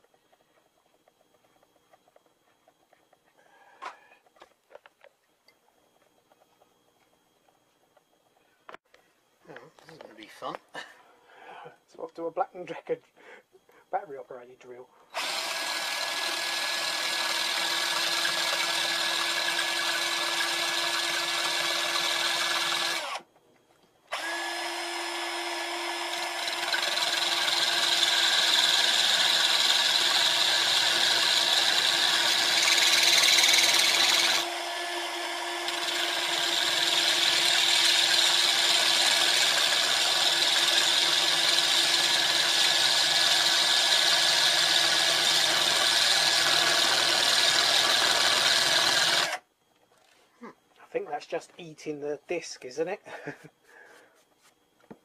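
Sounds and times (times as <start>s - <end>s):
drill grinding into metal: 15.1s - 23.3s, 24.1s - 49.4s.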